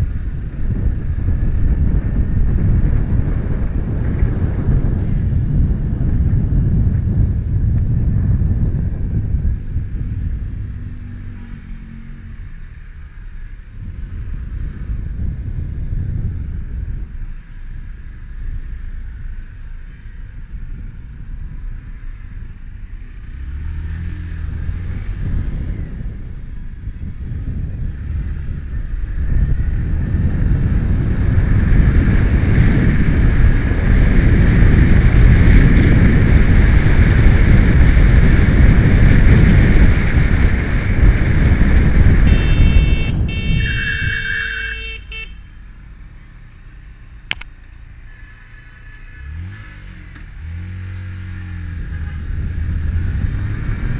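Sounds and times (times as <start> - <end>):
wind noise: 0.0 - 46.4, 47.0 - 53.9
motorcycle engine rumble: 0.0 - 53.9
vehicle horn: 42.2 - 45.6, 51.8 - 52.3.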